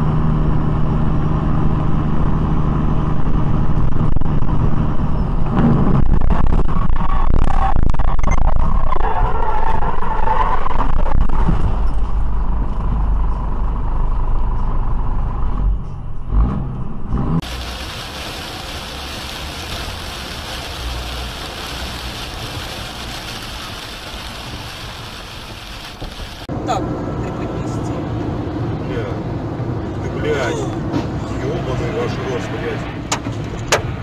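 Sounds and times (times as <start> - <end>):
truck engine rumble: 0.0 - 34.0
rain and tyre spray hiss: 17.4 - 26.5.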